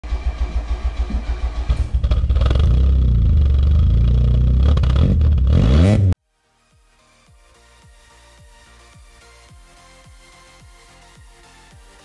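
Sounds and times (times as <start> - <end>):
car exhaust running and revving: 0.0 - 6.2
engine cranking: 0.0 - 6.2.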